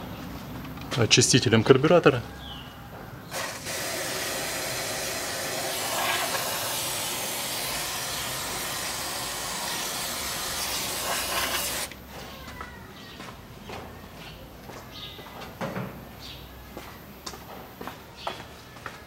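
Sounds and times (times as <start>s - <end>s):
aerosol spray hissing: 3.3s - 11.9s.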